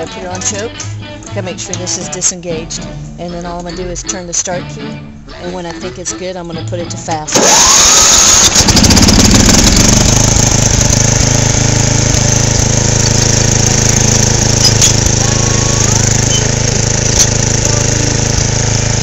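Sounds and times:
riding lawn mower engine running: 0:07.2 - 0:19.0.

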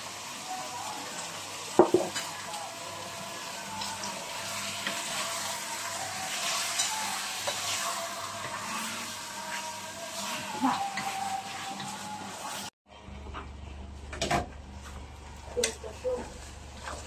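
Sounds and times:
chicken sizzling in a pot: 0:00.0 - 0:12.8, 0:15.1 - 0:17.0.

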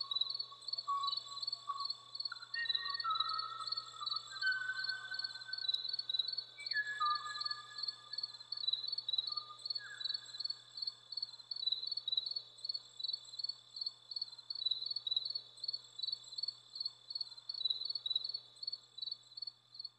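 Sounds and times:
whistled bird notes: 0:00.9 - 0:05.8, 0:06.6 - 0:08.2.

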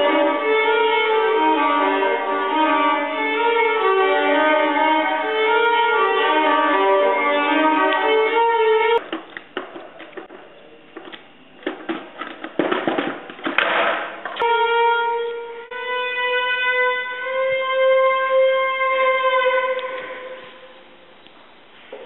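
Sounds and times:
fiddle long bowed note: 0:00.0 - 0:09.0, 0:14.4 - 0:21.1.

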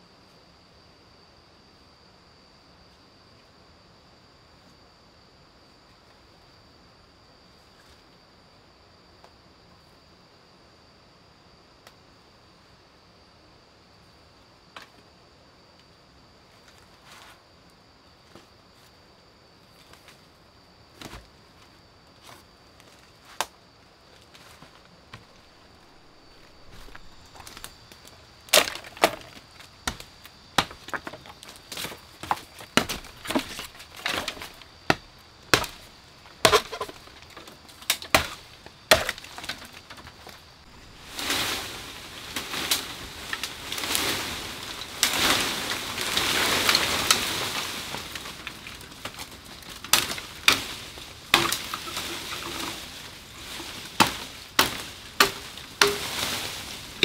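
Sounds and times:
bamboo leaves rustling: 0:20.9 - 0:57.0
blade chopping bamboo: 0:28.5 - 0:40.0, 0:49.9 - 0:52.7, 0:54.0 - 0:56.4.

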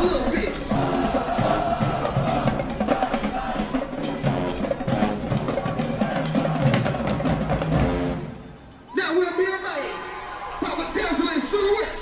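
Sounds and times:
drum strokes: 0:00.0 - 0:08.6
marching band playing: 0:00.0 - 0:08.9.

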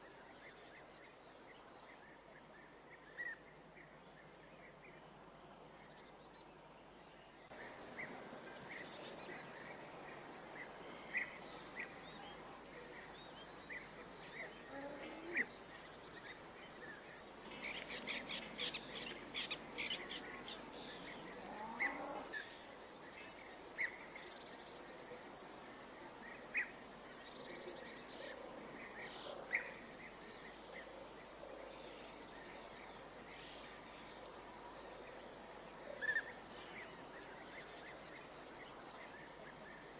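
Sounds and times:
crickets trilling: 0:00.0 - 0:39.9.

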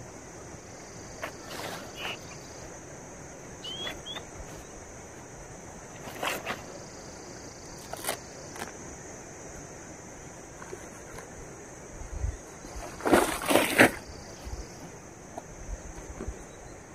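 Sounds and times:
high insect buzz: 0:00.0 - 0:16.1
bird chirping: 0:01.5 - 0:02.7, 0:03.6 - 0:04.8.

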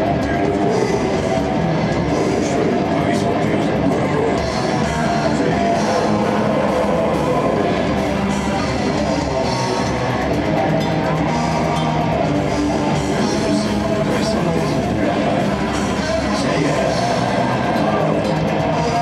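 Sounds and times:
metal band playing live: 0:00.0 - 0:19.0.

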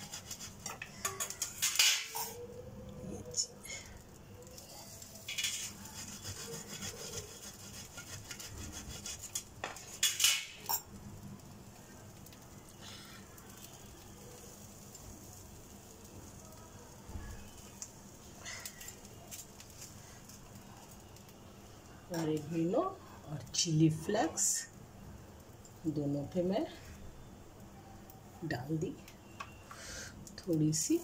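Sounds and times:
scratchy rustles and scrapes: 0:05.0 - 0:10.0.

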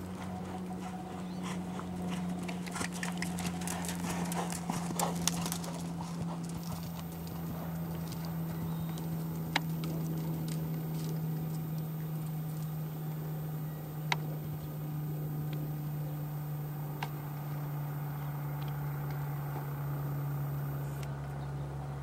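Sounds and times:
hooves striking sand: 0:00.0 - 0:12.5
steady low hum: 0:00.0 - 0:22.0.

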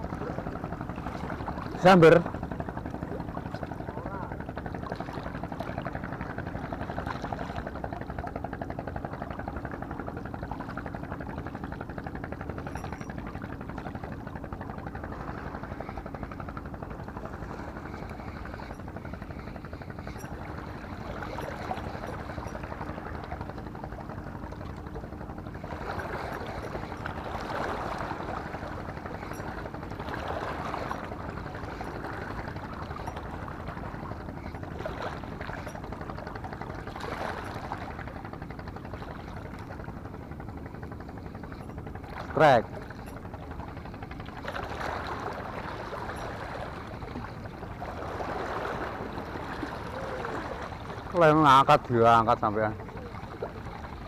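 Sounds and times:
low steady hum: 0:00.0 - 0:54.0
sea water washing: 0:00.0 - 0:54.0.

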